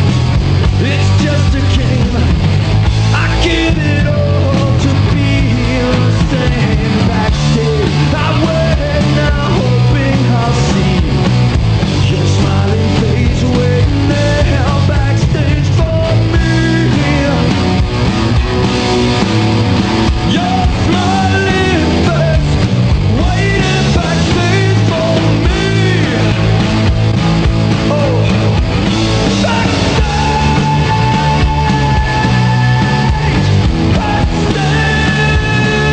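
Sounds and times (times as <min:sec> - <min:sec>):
bass guitar: 0:00.0 - 0:35.9
drums: 0:00.0 - 0:35.9
electric guitar: 0:00.0 - 0:35.9
person singing into a microphone: 0:00.8 - 0:02.4, 0:03.1 - 0:11.2, 0:12.0 - 0:17.5, 0:20.3 - 0:26.5, 0:29.3 - 0:35.9.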